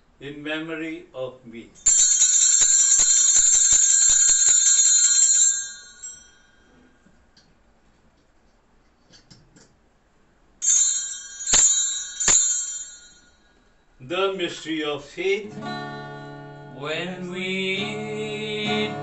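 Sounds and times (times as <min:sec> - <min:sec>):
altar bell ringing: 0:01.8 - 0:07.0, 0:10.6 - 0:13.9.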